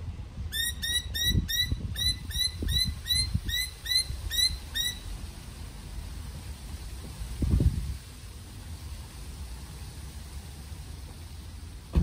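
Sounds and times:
bird chirping rapidly: 0.5 - 5.1.

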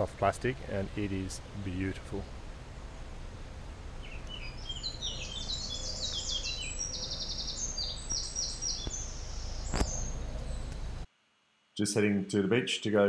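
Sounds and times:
songbird trilling song: 4.0 - 11.0.

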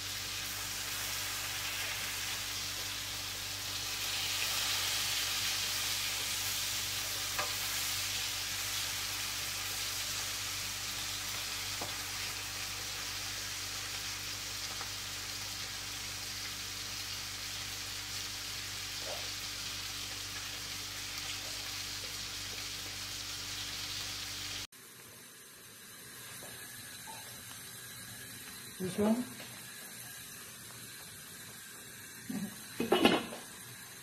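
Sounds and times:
food sizzling in frying pan: 0.0 - 34.0.

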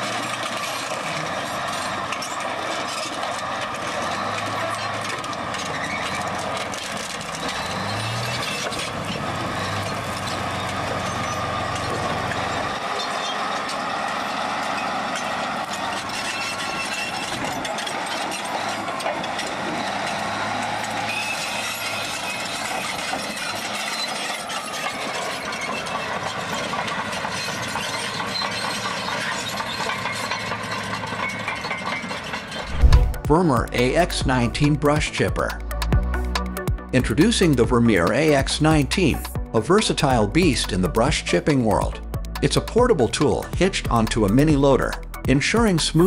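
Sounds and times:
steel tracks clanking: 0.0 - 36.6
bulldozer diesel engine: 0.0 - 46.0.

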